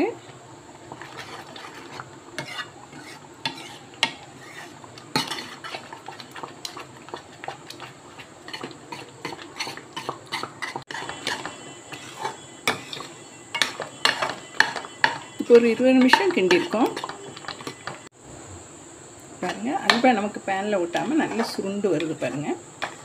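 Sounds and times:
metal ladle scraping a pan: 0.9 - 18.1.

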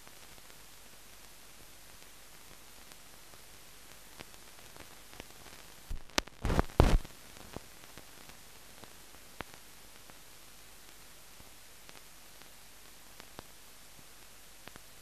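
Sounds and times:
faint crackles: 0.0 - 15.0
film soundtrack hiss: 0.0 - 15.0
loud pops and crackles: 2.0 - 10.2.

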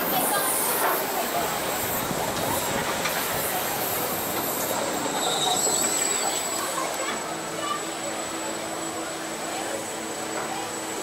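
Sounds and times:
coaster wheels on steel rails: 0.0 - 8.7.

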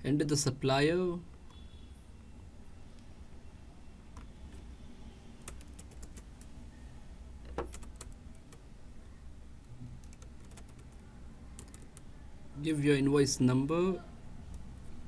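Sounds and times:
keyboard typing: 5.4 - 6.6, 7.4 - 8.6, 9.9 - 12.1.

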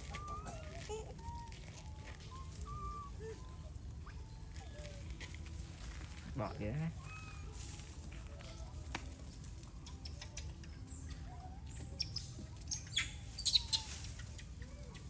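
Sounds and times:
animal chirps and squeaks: 0.0 - 5.5, 6.9 - 7.9, 9.7 - 15.0.

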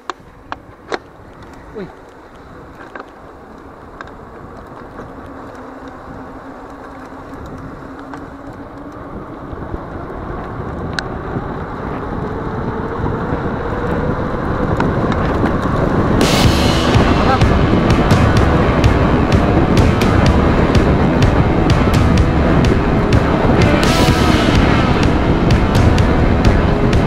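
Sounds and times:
bike tyres on concrete: 0.0 - 27.0
wind rushing over microphone: 0.0 - 27.0.

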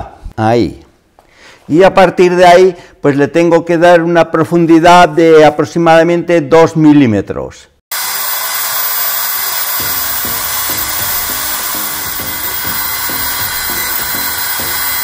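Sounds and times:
lathe motor whirring: 7.9 - 15.0
ram stroking cutter: 7.9 - 15.0.

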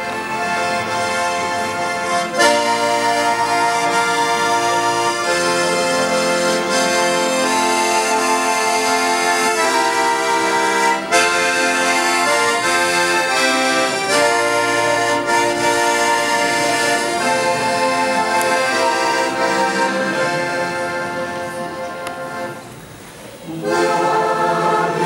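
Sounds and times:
accordion playing hymn chords: 0.0 - 25.0.

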